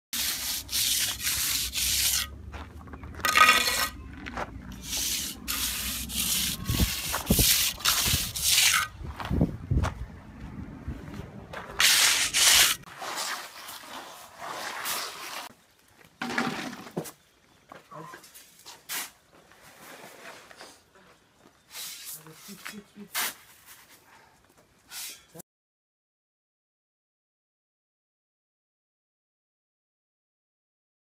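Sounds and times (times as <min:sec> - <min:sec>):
scraping on gravel and sand: 0:00.2 - 0:17.3, 0:18.2 - 0:20.9
low rumble: 0:08.9 - 0:11.8.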